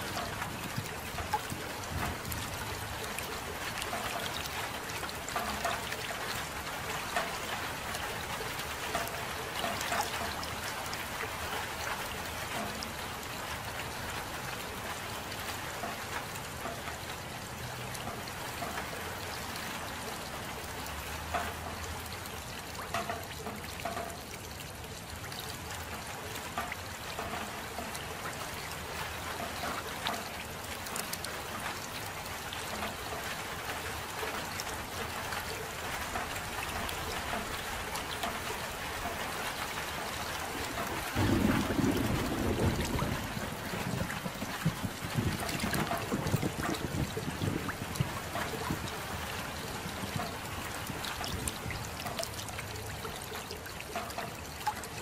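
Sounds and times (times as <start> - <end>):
soft rainfall: 0.0 - 55.0
water dripping and trickling: 0.0 - 55.0
low rumble of thunder: 40.6 - 49.2.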